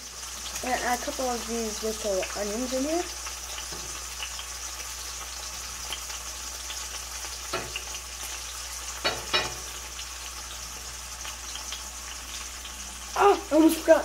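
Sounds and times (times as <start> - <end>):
fish sizzling in a pan: 0.0 - 14.0.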